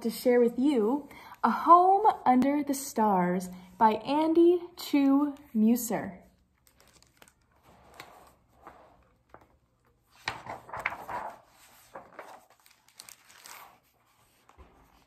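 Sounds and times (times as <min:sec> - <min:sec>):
book pages rustling: 0:06.5 - 0:15.0.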